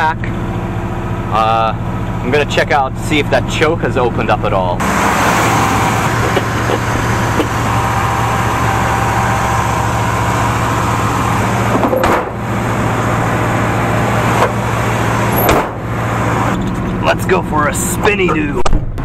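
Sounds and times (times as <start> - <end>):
pickup engine fast idle: 4.8 - 16.6
car hood slamming shut: 11.7 - 12.4, 15.4 - 15.8.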